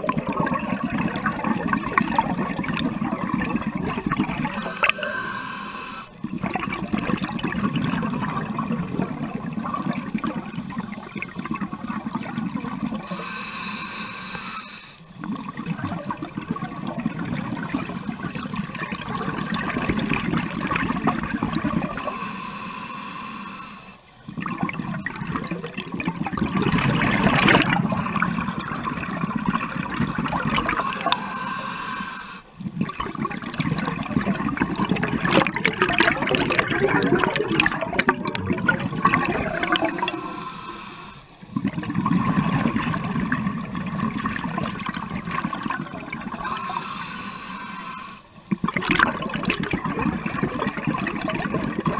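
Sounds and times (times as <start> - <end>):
bubbling exhaled air underwater: 0.0 - 51.9
regulator hissing inhale: 4.6 - 6.2, 13.0 - 15.1, 21.9 - 24.1, 30.6 - 32.6, 39.5 - 41.4, 46.3 - 48.4.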